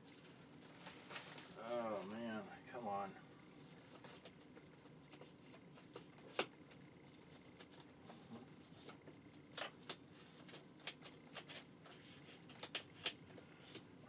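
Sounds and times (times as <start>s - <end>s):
plastic wrap crackling: 0.2s - 2.2s.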